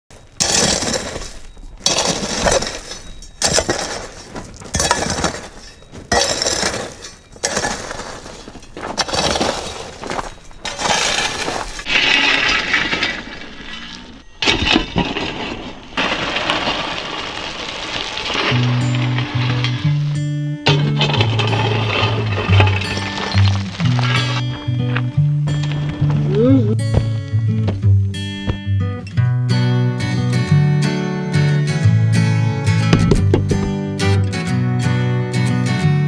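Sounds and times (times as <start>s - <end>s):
shovel crunching into gravel: 0.1s - 26.3s
stones clattering: 0.1s - 27.8s, 32.8s - 33.9s.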